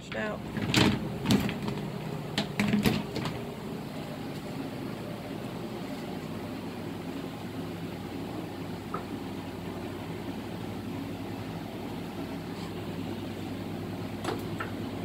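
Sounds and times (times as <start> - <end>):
steady low hum: 0.0 - 15.0
wooden hive parts clattering: 0.1 - 3.6.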